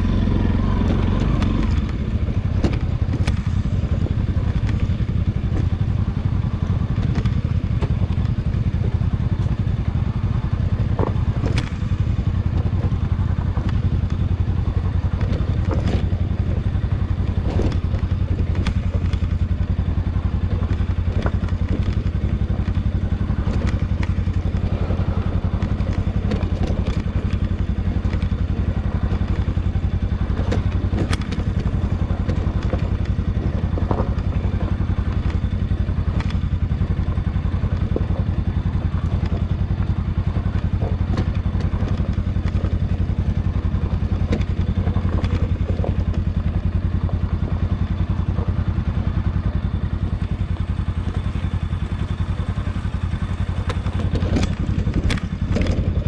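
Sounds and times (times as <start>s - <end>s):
motorcycle engine running: 0.0s - 56.0s.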